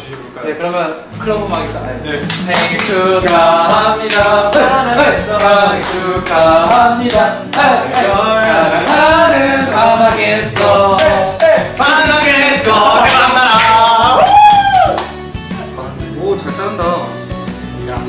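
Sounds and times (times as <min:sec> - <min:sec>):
man singing over a beat: 0:02.3 - 0:14.2.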